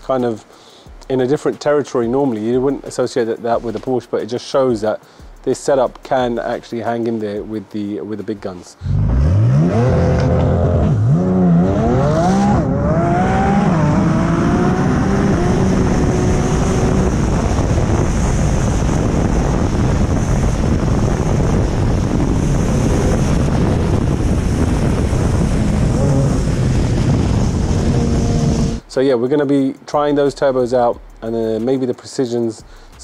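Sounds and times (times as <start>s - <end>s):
wind noise at high speed: 8.8s - 28.8s
drag car engine at full throttle: 8.9s - 28.8s.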